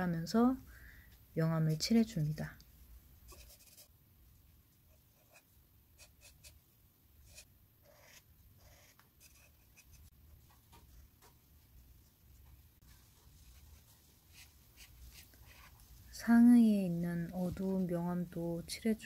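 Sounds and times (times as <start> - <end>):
marker scratching on paper: 3.3 - 3.9, 4.9 - 6.6, 7.2 - 10.1, 13.5 - 15.8.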